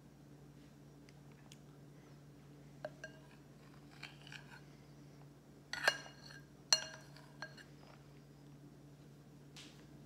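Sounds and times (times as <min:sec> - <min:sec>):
utensil clinking against bowl: 0:05.7 - 0:08.0.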